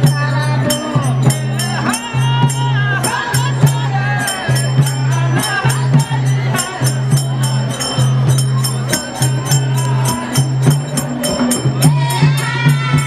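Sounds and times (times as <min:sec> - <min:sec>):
man singing: 0:00.0 - 0:07.7, 0:11.8 - 0:13.0
hand drum beating: 0:00.0 - 0:13.0
metallic jingling beat: 0:00.0 - 0:13.0.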